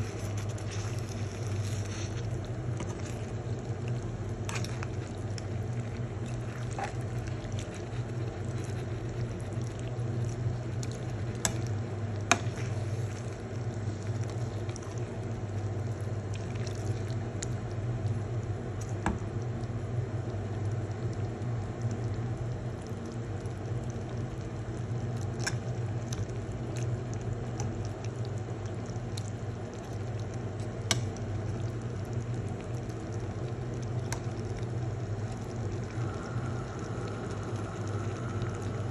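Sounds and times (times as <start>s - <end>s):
sauce bubbling in a pan: 0.0s - 38.9s
low hum: 33.2s - 38.9s.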